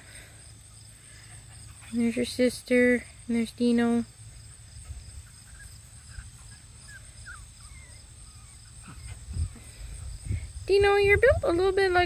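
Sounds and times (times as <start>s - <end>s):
puppies squeaking: 5.1s - 9.8s.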